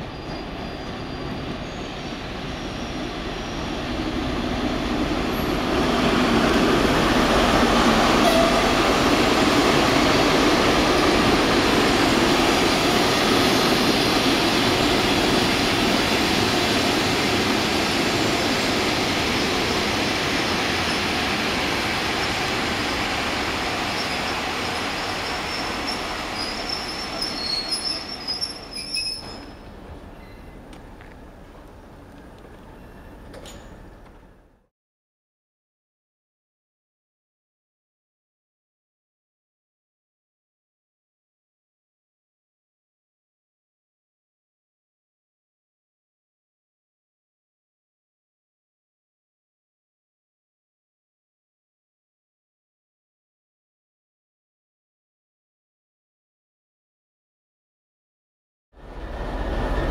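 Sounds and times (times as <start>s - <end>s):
high wheel squeals: 0.0s - 4.0s, 23.8s - 30.6s
train wheels rolling: 0.0s - 34.6s
diesel locomotive passing: 0.0s - 34.7s, 58.8s - 59.9s.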